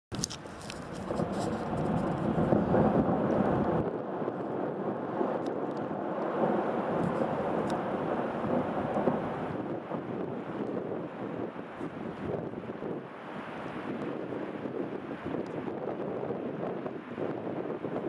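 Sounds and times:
ice avalanche rumble: 0:00.6 - 0:09.6.

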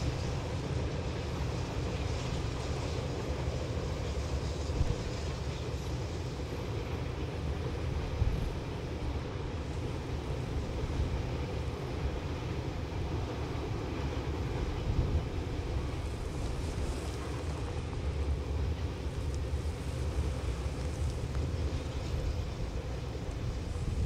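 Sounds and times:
distant steam locomotive exhaust: 0:00.0 - 0:24.0.

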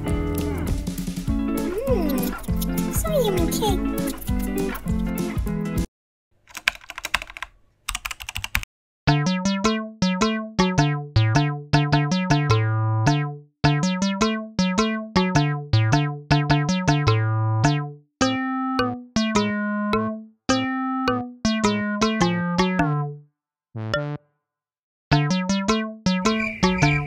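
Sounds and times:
keyboard typing clicks: 0:06.5 - 0:08.7
plucked electric piano music: 0:09.1 - 0:23.2, 0:23.8 - 0:24.2, 0:25.1 - 0:26.8.

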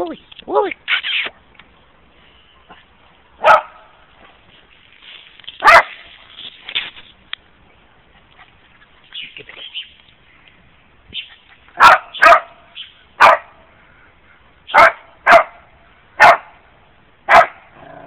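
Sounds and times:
dog barking: 0:03.4 - 0:03.9, 0:05.6 - 0:06.0, 0:11.8 - 0:12.6, 0:13.2 - 0:13.6, 0:14.7 - 0:15.6, 0:16.2 - 0:16.6, 0:17.3 - 0:17.7.

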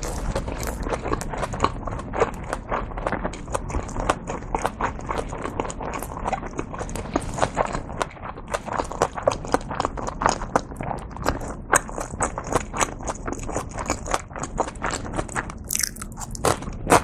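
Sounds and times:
wet mouth clicks and smacks: 0:15.5 - 0:17.0.

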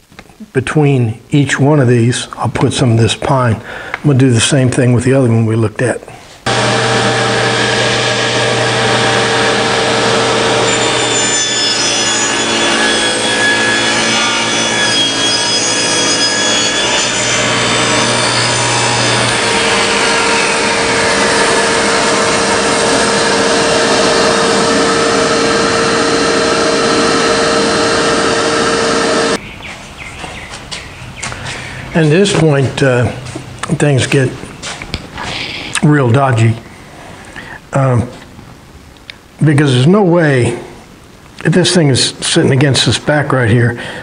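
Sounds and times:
table saw cutting wood: 0:06.5 - 0:29.4.

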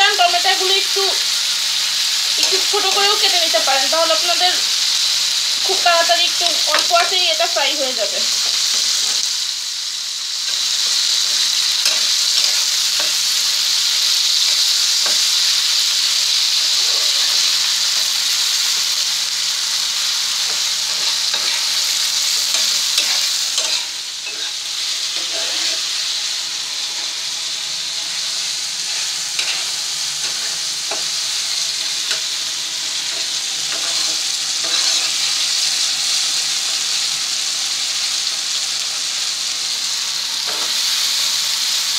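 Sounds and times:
tomatoes and onions sizzling in oil: 0:00.0 - 0:41.9
spoon stirring and scraping: 0:11.8 - 0:13.3, 0:20.4 - 0:26.0, 0:28.9 - 0:31.2, 0:33.0 - 0:35.2.

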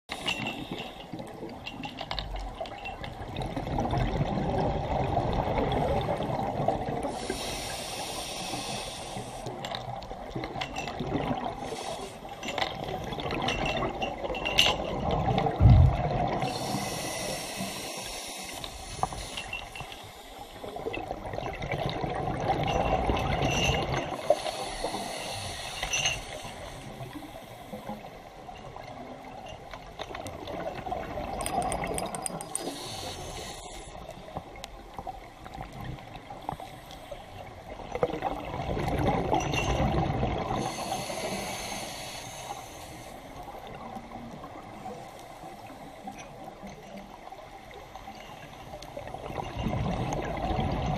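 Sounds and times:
rush of bubbles: 0:03.2 - 0:07.6, 0:10.2 - 0:12.0, 0:12.8 - 0:17.7, 0:20.7 - 0:24.3, 0:37.9 - 0:40.9, 0:49.0 - 0:50.9
regulator hiss on inhalation: 0:07.1 - 0:09.6, 0:11.7 - 0:12.2, 0:16.5 - 0:20.7, 0:24.2 - 0:27.8, 0:32.3 - 0:34.0, 0:40.6 - 0:43.3.

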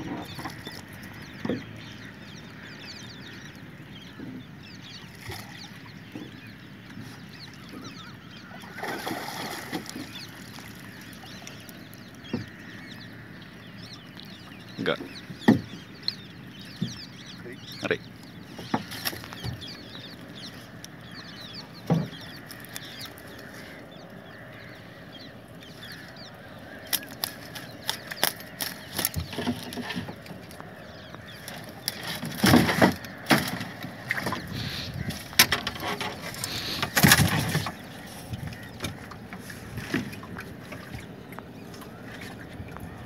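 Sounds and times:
wet net being hauled: 0:08.6 - 0:11.0, 0:35.1 - 0:43.0
splashing and thrashing: 0:08.6 - 0:11.6, 0:26.7 - 0:43.0.

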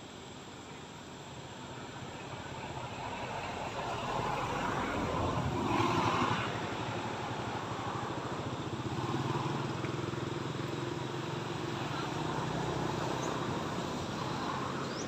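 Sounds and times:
vehicle engine humming: 0:02.0 - 0:15.0.

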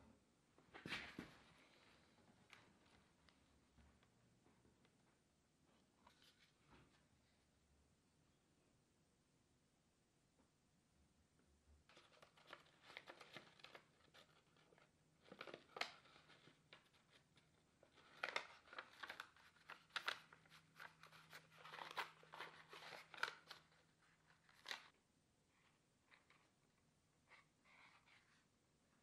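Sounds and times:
paper rustling and crinkling: 0:11.9 - 0:25.0.

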